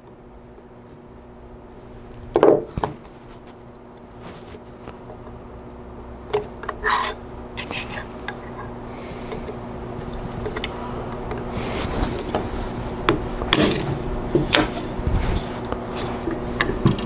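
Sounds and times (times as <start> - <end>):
metal scraping on metal: 6.8 - 8.7.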